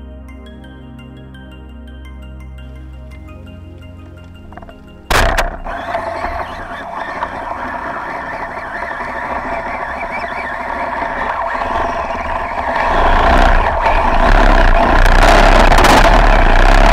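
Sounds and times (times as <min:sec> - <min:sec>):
engine drone underwater: 0:04.4 - 0:16.9.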